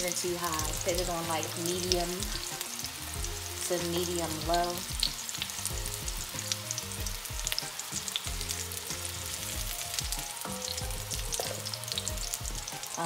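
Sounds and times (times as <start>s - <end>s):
meatballs sizzling in hot oil: 0.0s - 13.0s.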